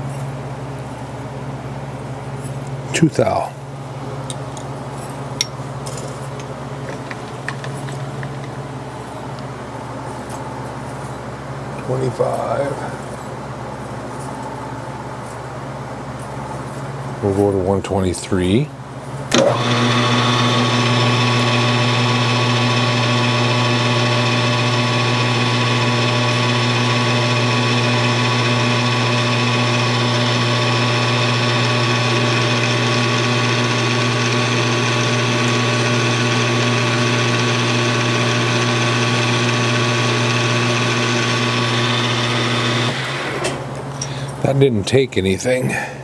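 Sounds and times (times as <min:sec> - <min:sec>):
metal lathe running: 0:19.3 - 0:43.6.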